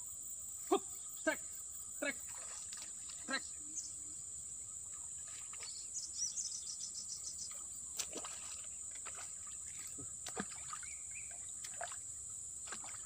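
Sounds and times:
high insect drone: 0.0s - 13.0s
fish splashing in water: 8.0s - 13.0s.

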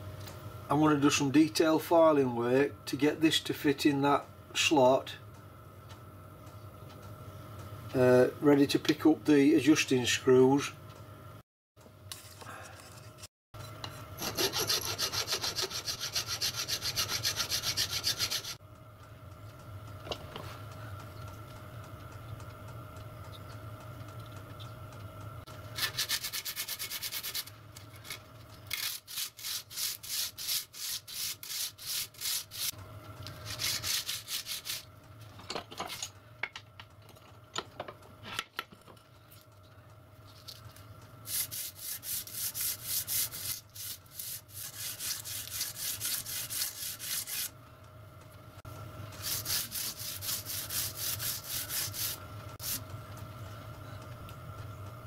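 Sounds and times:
hand file stroking metal: 14.2s - 18.6s, 25.8s - 27.5s, 28.8s - 32.7s, 41.3s - 47.5s, 49.2s - 52.8s.

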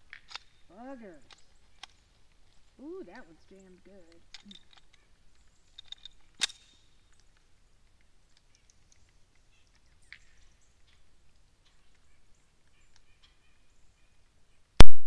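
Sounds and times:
faint bird chirps: 8.5s - 14.8s
handgun shot: 14.8s - 15.0s.

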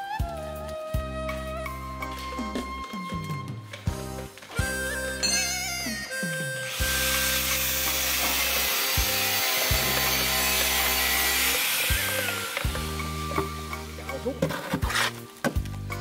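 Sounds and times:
background music low sustained notes: 0.0s - 16.0s
shovel working wet mortar: 14.3s - 15.3s.

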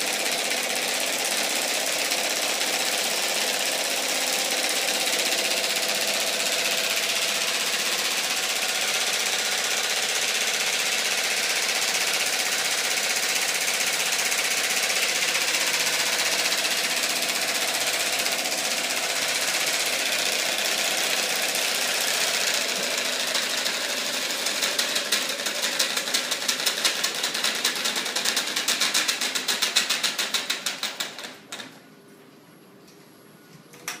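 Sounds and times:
flapping wing mechanism rattling: 17.8s - 31.3s.

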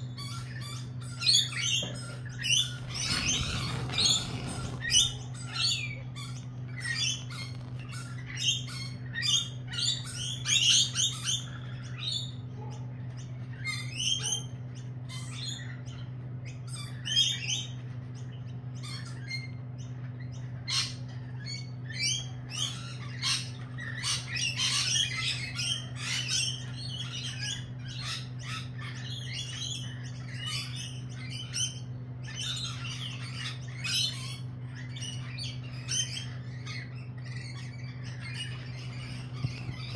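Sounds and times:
lorikeets squawking and chattering: 0.0s - 39.9s
steady low hum: 0.0s - 39.9s.

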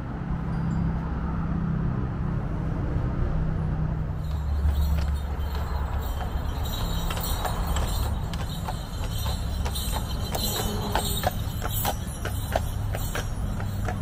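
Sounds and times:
horse hooves clip-clopping: 4.2s - 14.0s.

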